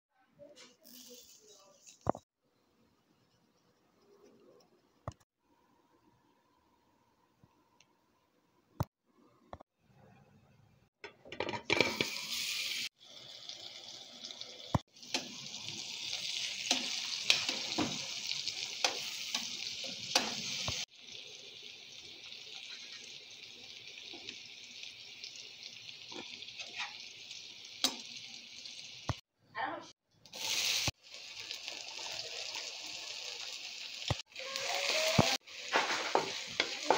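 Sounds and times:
fish sizzling in hot oil: 0:11.8 - 0:29.2, 0:30.3 - 0:36.9.

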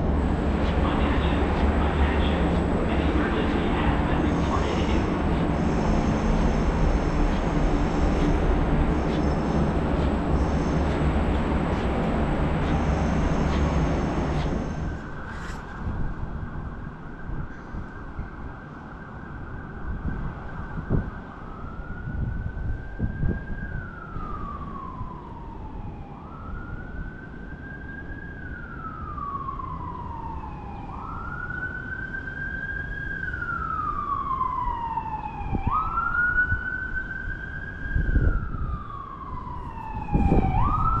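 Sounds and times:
low rumble: 0:00.0 - 0:16.1
emergency vehicle siren wailing: 0:00.0 - 0:41.0.

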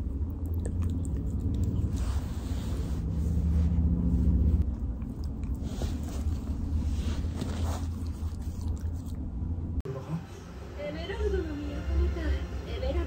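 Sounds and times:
dog licking and snuffling: 0:00.1 - 0:03.0, 0:04.6 - 0:09.3.

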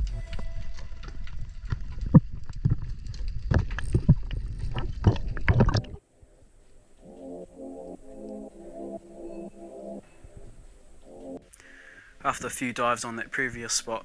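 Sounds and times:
underwater water rushing: 0:02.0 - 0:06.0
background music with low chords: 0:06.8 - 0:11.9.

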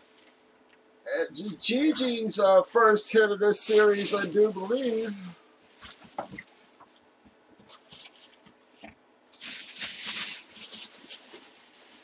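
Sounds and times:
plastic bag crinkling: 0:03.6 - 0:07.0, 0:07.6 - 0:12.0.

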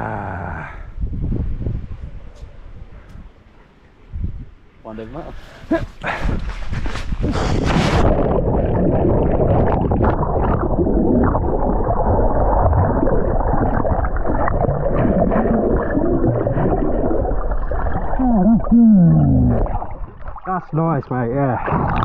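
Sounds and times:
underwater churning and bubbling: 0:07.2 - 0:22.0
water splash: 0:07.3 - 0:22.0.

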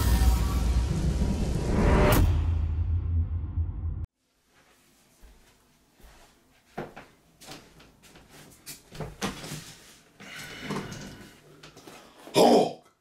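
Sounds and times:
footsteps: 0:04.4 - 0:10.1.

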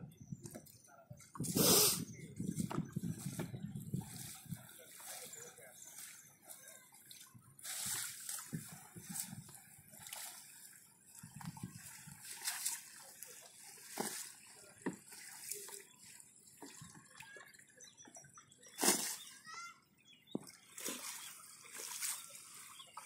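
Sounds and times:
water sloshing in a net: 0:03.1 - 0:19.7, 0:20.4 - 0:23.0
fish splashing: 0:18.8 - 0:19.4, 0:20.6 - 0:23.0.

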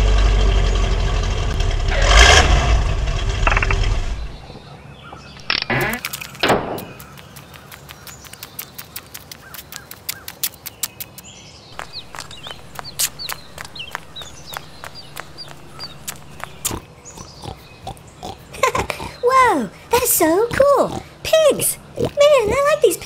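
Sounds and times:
high bird chirps: 0:04.2 - 0:18.0
pigs grunting: 0:11.8 - 0:23.0.

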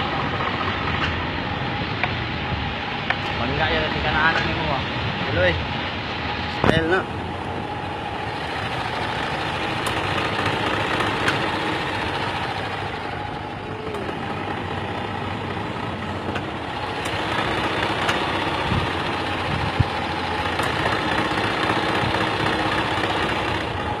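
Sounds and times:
golf cart motor and road noise: 0:00.0 - 0:24.0
sharp knocks and rattles: 0:08.4 - 0:13.0, 0:13.9 - 0:23.8.

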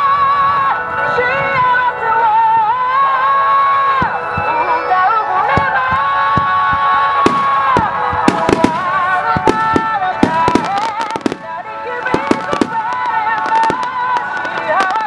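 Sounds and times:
music with held melody notes: 0:00.0 - 0:15.0
fireworks bursting: 0:03.3 - 0:15.0.

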